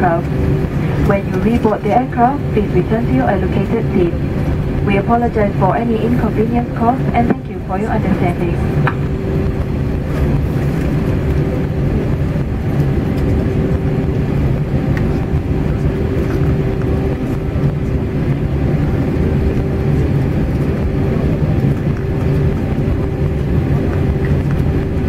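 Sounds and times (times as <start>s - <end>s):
jet engines idling hum: 0.0s - 25.0s
low cabin rumble: 0.0s - 25.0s.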